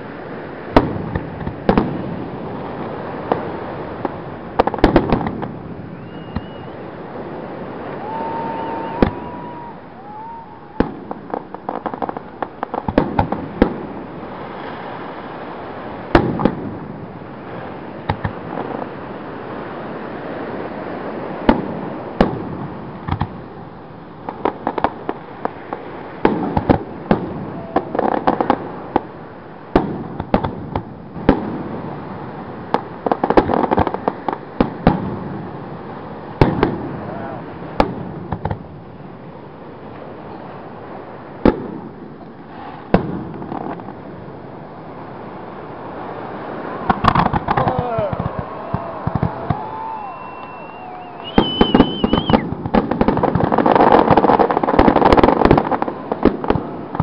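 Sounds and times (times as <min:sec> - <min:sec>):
firework bursts with sharp bangs: 0:00.0 - 0:57.0
firework crackling: 0:00.0 - 0:57.0
firework whistle: 0:05.0 - 0:11.5, 0:46.5 - 0:56.0.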